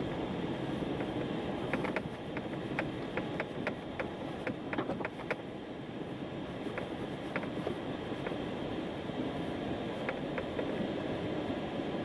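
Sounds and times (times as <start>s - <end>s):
car tyres and engine rumble: 0.0s - 12.0s
sharp irregular clicks: 1.7s - 5.4s.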